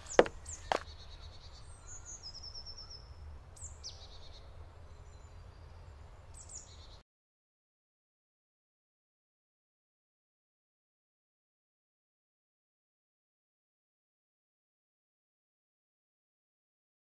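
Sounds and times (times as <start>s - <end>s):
songbirds singing trills: 0.0s - 7.0s.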